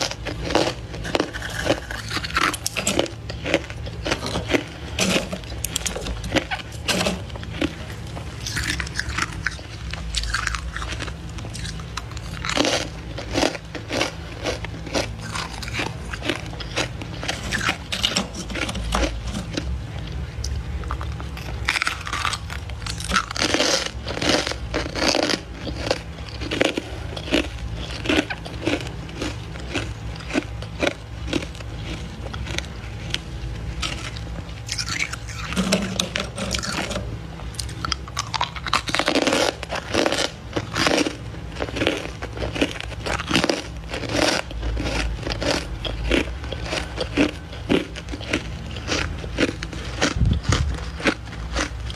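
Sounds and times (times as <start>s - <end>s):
frost crunching and squeaking: 0.0s - 51.9s
steady low hum: 0.0s - 51.9s.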